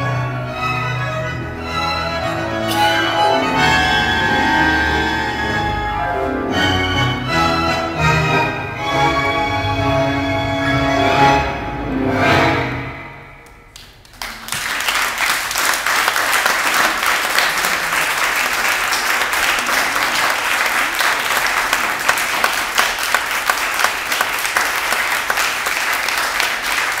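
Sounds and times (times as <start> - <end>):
tango music: 0.0 - 13.7
audience clapping: 13.4 - 27.0.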